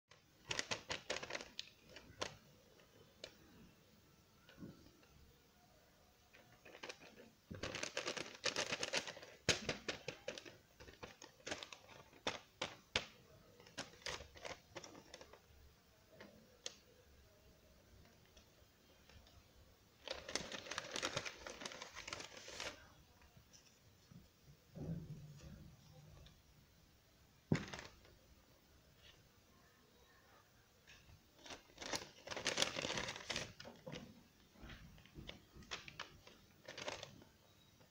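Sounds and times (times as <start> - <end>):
paper rustling and crinkling: 0.4 - 2.4, 6.4 - 15.5, 20.0 - 22.9, 27.5 - 28.1, 31.4 - 37.9.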